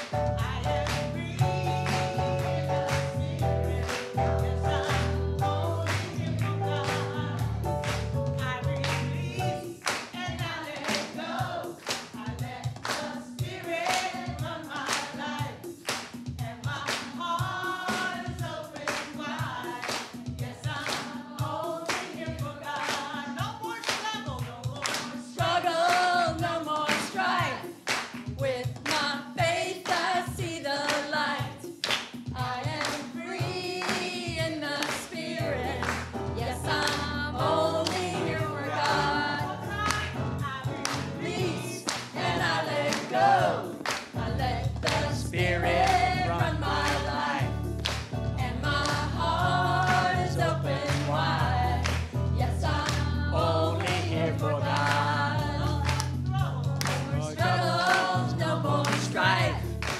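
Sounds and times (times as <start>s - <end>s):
keyboard accompaniment: 0.0s - 9.9s, 35.4s - 59.9s
congregation singing: 0.0s - 15.8s, 16.7s - 23.8s, 32.6s - 59.9s.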